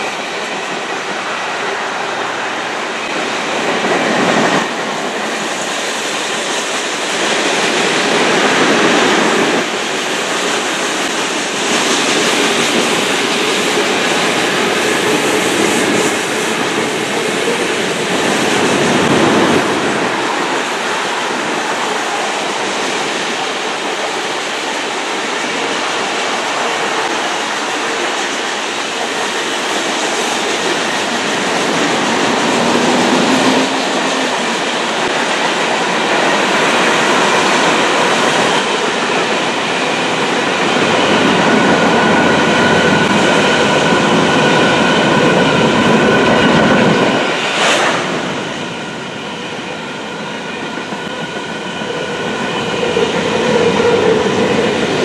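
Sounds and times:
steel wheels rattling on rail: 0.0 - 55.0.

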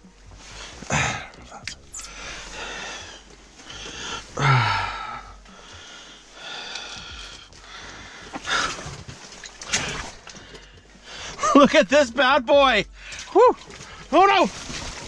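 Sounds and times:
man breathing hard: 2.0 - 9.0
man groaning: 4.4 - 5.2.

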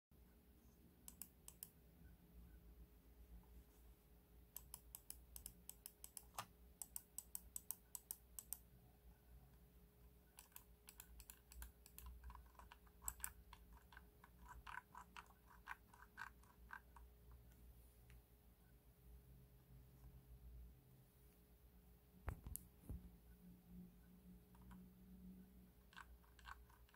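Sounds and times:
mouse scroll wheel clicking: 1.0 - 1.8, 4.6 - 8.6, 10.3 - 17.5, 24.5 - 24.8, 25.8 - 26.9.

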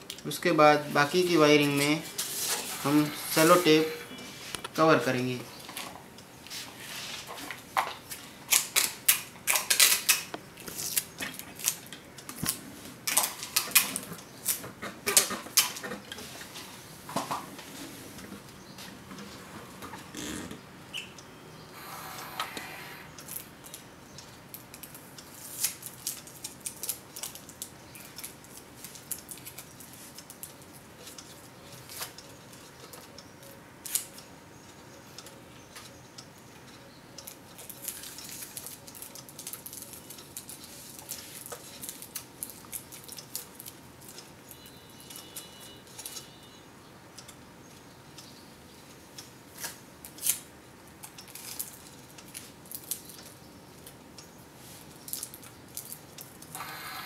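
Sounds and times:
tape crackling: 7.2 - 16.2, 23.2 - 34.3, 37.2 - 46.3, 49.5 - 54.0, 54.6 - 56.7
wires rustling: 37.2 - 46.3.

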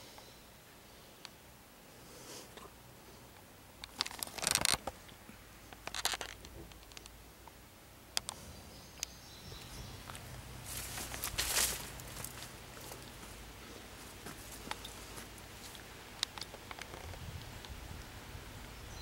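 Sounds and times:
rustling and scraping against bark: 2.1 - 7.2, 9.4 - 18.0
sharp clicks: 16.1 - 17.8.

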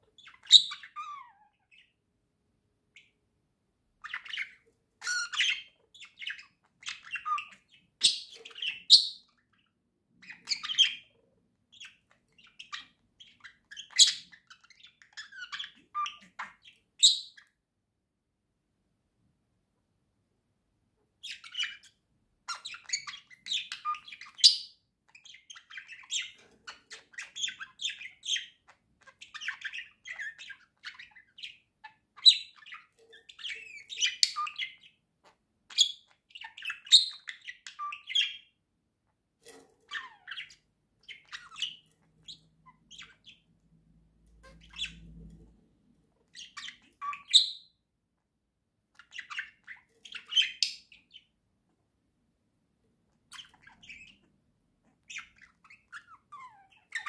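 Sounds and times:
budgerigars chattering: 0.2 - 1.9, 4.0 - 17.4, 21.2 - 38.5, 39.9 - 43.5, 44.4 - 45.1, 46.3 - 47.6, 49.0 - 51.3, 53.2 - 54.3, 55.0 - 57.0.

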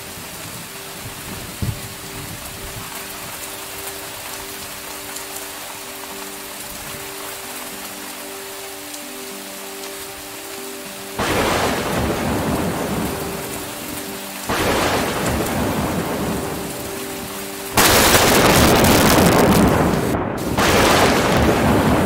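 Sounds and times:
heavy rain: 0.0 - 22.0
loud thunderclaps: 11.2 - 13.6, 14.5 - 16.9, 17.8 - 22.0.

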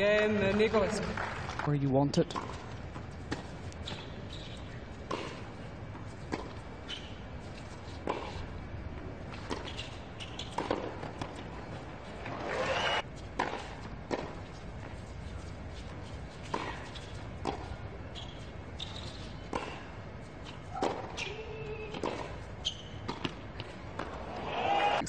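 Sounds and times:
tennis ball bouncing: 5.0 - 7.1, 9.3 - 11.5, 13.4 - 14.4, 16.4 - 17.7, 20.4 - 24.4.

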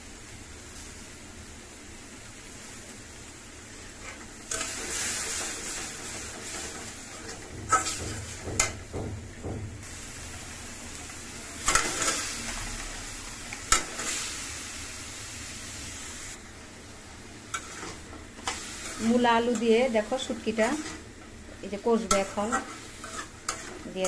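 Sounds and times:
food sizzling in hot oil: 0.0 - 24.0
metal spatula scraping a pan: 4.0 - 8.8, 11.6 - 12.8, 17.5 - 21.1, 21.8 - 24.0.

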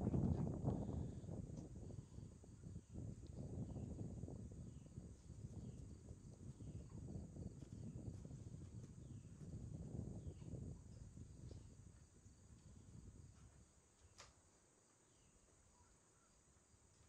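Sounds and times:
high insect drone: 0.0 - 8.4
wind rumble on microphone: 0.0 - 14.3.

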